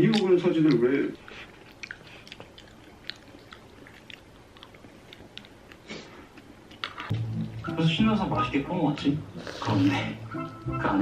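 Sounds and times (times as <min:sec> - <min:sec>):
person chewing food: 0:00.0 - 0:07.6.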